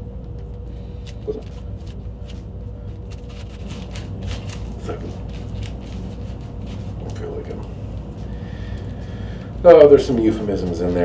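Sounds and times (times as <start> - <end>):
plastic wrap crinkling: 0.8 - 8.2.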